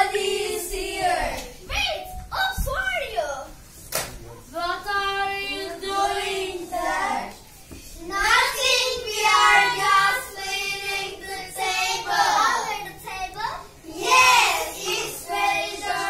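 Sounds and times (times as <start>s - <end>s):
child singing: 8.0s - 16.0s.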